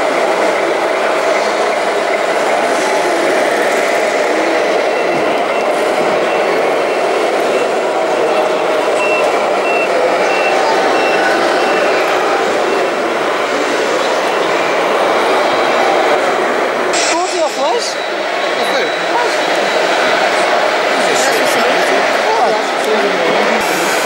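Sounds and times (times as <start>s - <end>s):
constant background din: 0.0s - 24.0s
reverse warning beeper: 4.4s - 13.0s.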